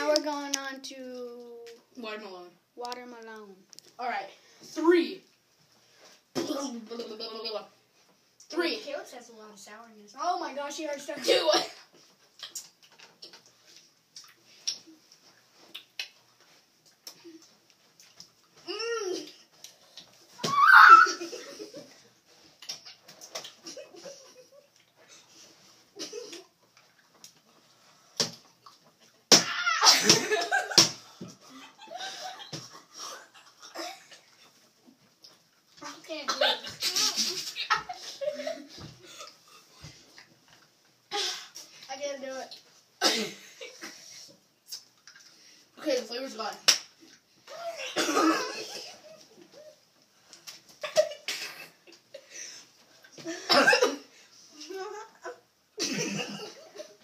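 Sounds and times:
children yelling: 0:20.4 - 0:21.3, 0:29.4 - 0:30.2
short coughing bursts: 0:43.0 - 0:43.4, 0:47.8 - 0:48.9, 0:53.4 - 0:54.1.

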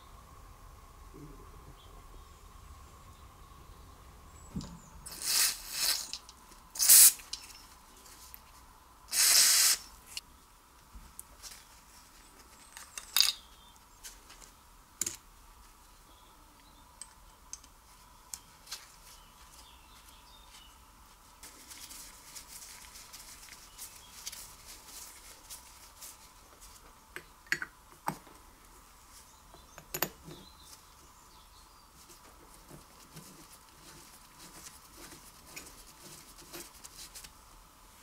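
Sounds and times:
aerosol spray hissing: 0:04.7 - 0:06.2, 0:06.8 - 0:07.2, 0:09.1 - 0:10.0.

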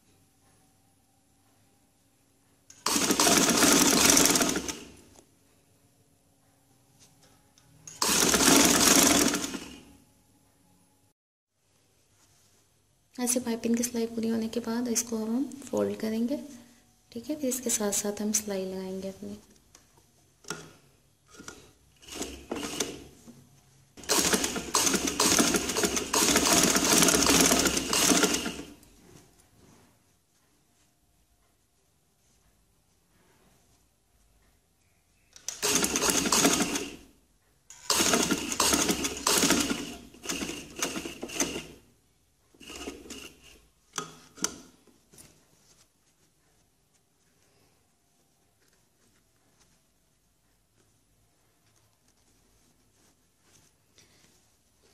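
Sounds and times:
sewing machine stitching: 0:02.7 - 0:05.1, 0:07.8 - 0:09.9, 0:21.3 - 0:23.2, 0:24.0 - 0:28.8, 0:35.4 - 0:37.1, 0:37.7 - 0:41.8, 0:42.6 - 0:44.7.

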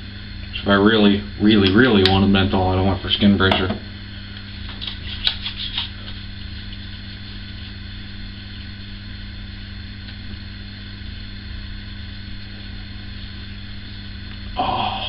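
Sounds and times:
mechanical hum: 0:00.0 - 0:15.0.

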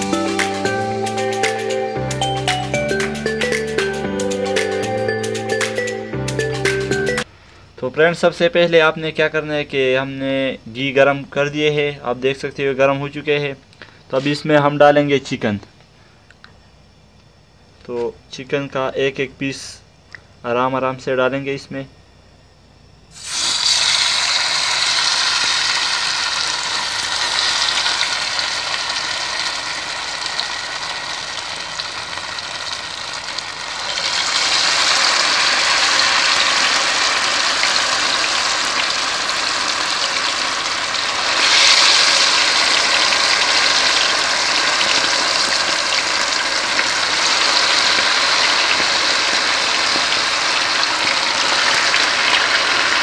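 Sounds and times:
chicken deep-frying sizzle: 0:23.1 - 0:53.0.

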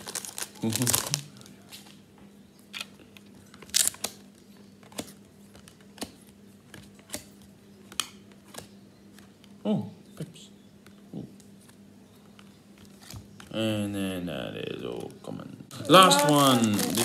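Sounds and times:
trading cards snapping: 0:02.8 - 0:09.3.

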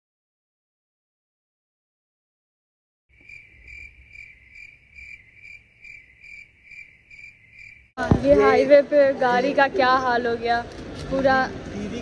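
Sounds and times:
cricket chirping: 0:03.1 - 0:08.0.

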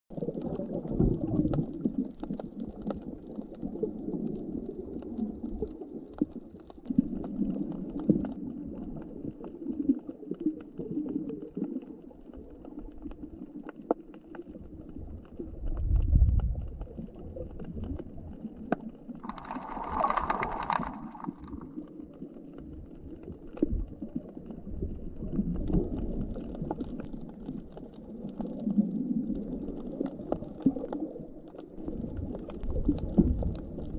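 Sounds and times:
underwater rumbling water wash: 0:00.1 - 0:06.0, 0:14.8 - 0:18.5, 0:19.1 - 0:33.9
sharp underwater clicks: 0:00.2 - 0:24.6.

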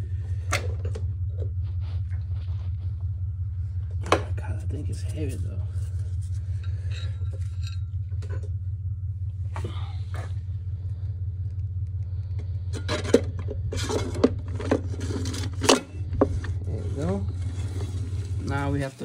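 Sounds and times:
low steady hum: 0:00.0 - 0:19.0
metal parts clinking and scraping: 0:06.5 - 0:08.5.

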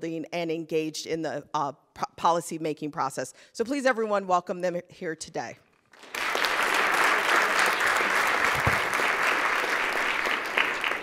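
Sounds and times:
crowd applauding: 0:05.9 - 0:11.0.

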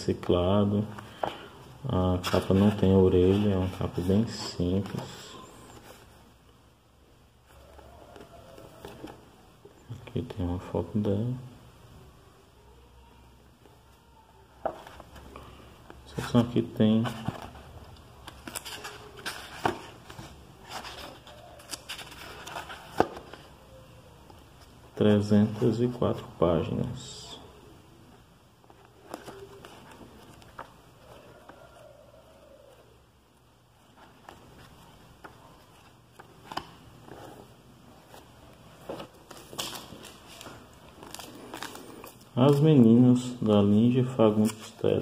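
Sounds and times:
book pages rustling: 0:00.9 - 0:06.2, 0:14.6 - 0:24.8, 0:28.6 - 0:31.8, 0:33.7 - 0:43.0.

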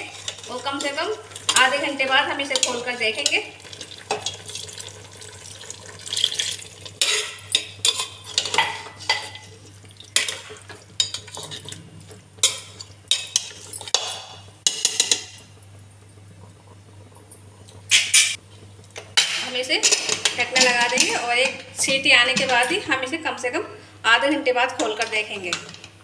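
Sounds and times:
metal spatula scraping a pot: 0:00.0 - 0:01.8, 0:07.0 - 0:09.6.

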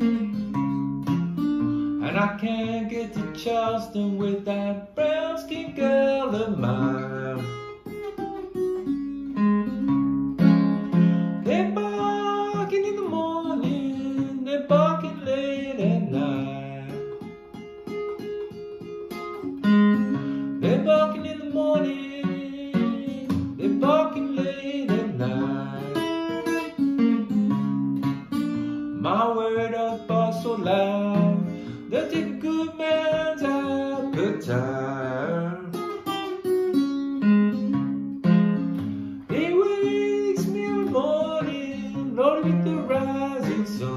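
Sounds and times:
acoustic guitar picking: 0:00.0 - 0:43.9
man singing: 0:01.8 - 0:08.0, 0:11.4 - 0:17.4, 0:19.9 - 0:27.0, 0:28.8 - 0:36.5, 0:39.2 - 0:43.9.

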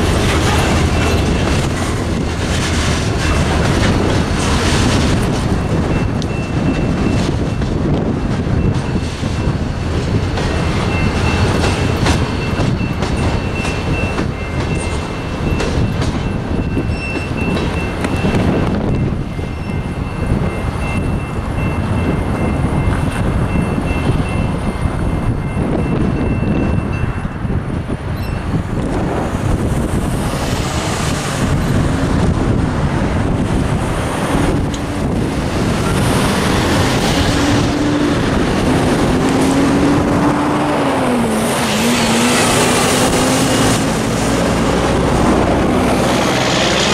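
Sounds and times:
crossing bells ringing: 0:00.0 - 0:02.3, 0:02.9 - 0:28.8
cars passing: 0:00.0 - 0:46.9
train wheels clattering on rails: 0:00.0 - 0:46.9
car engine accelerating: 0:37.1 - 0:46.9.

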